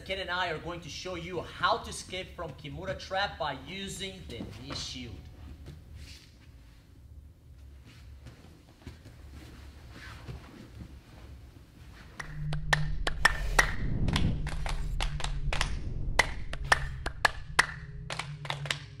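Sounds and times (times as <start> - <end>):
low drone: 12.2 - 19.0.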